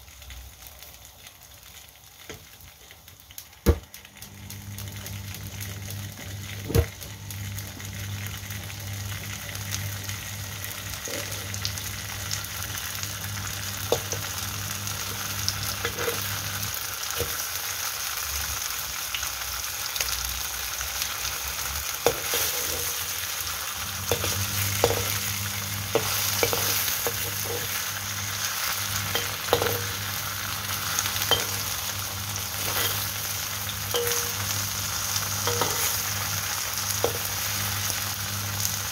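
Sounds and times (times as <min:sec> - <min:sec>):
cake sizzling in oil: 0:00.0 - 0:38.9
low steady hum: 0:23.8 - 0:38.9
metal spatula clinking on a wok: 0:29.1 - 0:29.9, 0:31.3 - 0:31.7, 0:33.9 - 0:34.4, 0:35.5 - 0:36.0.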